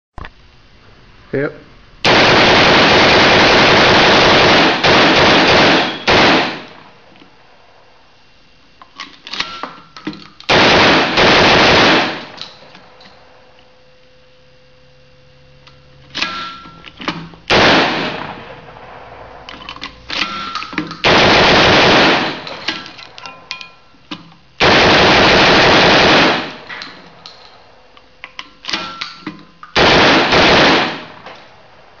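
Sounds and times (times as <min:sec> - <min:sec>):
machine gun automatic bursts: 0:02.0 - 0:06.8, 0:10.5 - 0:12.7, 0:17.5 - 0:18.5, 0:20.2 - 0:22.9, 0:24.6 - 0:27.1, 0:29.8 - 0:31.5.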